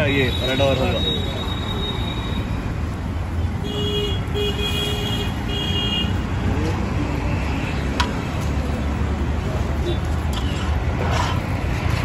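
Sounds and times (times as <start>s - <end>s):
low rumble of street noise: 0.0s - 12.0s
vehicle horn honking: 3.6s - 6.1s.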